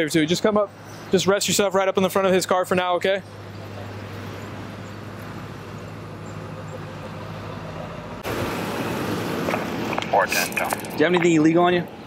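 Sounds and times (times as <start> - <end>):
road and vehicle noise: 0.0 - 12.0
low engine hum: 2.0 - 12.0.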